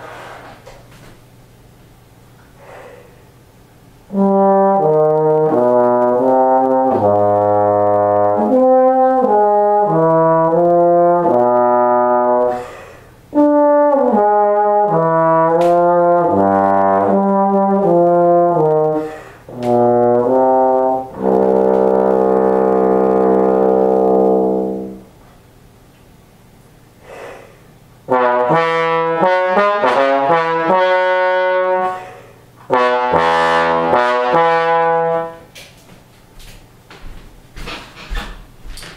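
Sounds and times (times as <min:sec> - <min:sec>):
player breathing: 0:02.5 - 0:03.4, 0:12.5 - 0:13.2, 0:19.0 - 0:19.5, 0:27.0 - 0:27.8, 0:31.9 - 0:32.4
bass trombone notes: 0:04.0 - 0:25.2, 0:27.7 - 0:35.9.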